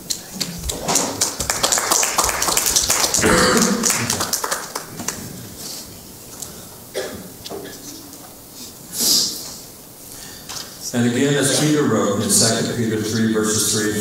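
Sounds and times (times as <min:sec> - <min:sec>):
congregation applauding: 0:01.1 - 0:05.5.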